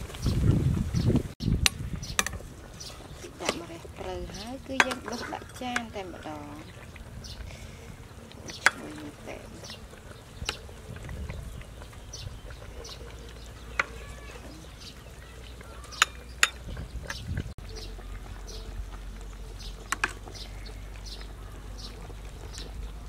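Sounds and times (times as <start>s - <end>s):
metal ladle clinking on bowl: 4.8s - 5.9s.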